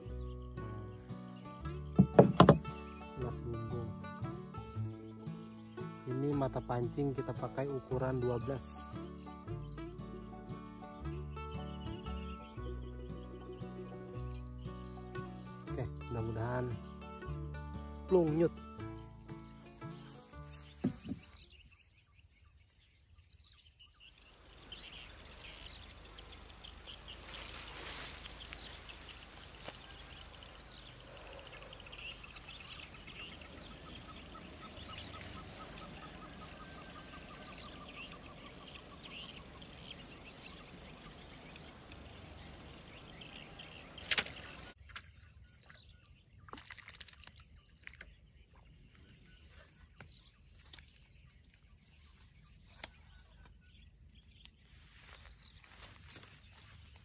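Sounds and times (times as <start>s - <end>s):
insects droning: 0.0s - 44.8s, 47.3s - 57.0s
birds chirping: 0.0s - 46.7s, 47.3s - 57.0s
falling trilling bird call: 29.9s - 44.8s.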